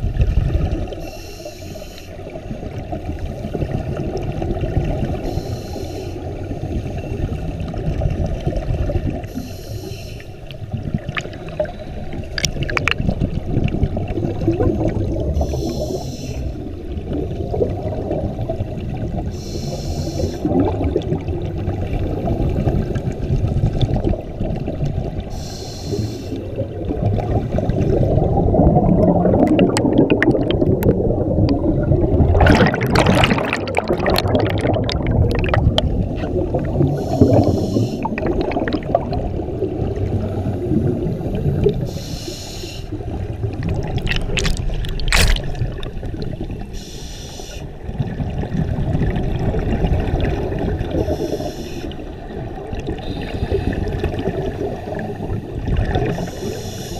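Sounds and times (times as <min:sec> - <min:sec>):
underwater exhaust bubbles rumbling: 0:00.0 - 0:01.2, 0:02.2 - 0:56.9
regulator hiss: 0:01.0 - 0:02.3, 0:05.3 - 0:06.3, 0:09.3 - 0:10.4, 0:15.4 - 0:16.6, 0:19.3 - 0:20.4, 0:25.3 - 0:26.4, 0:37.0 - 0:38.2, 0:41.5 - 0:43.0, 0:46.7 - 0:47.7, 0:51.0 - 0:52.0, 0:53.0 - 0:53.8, 0:56.1 - 0:56.9.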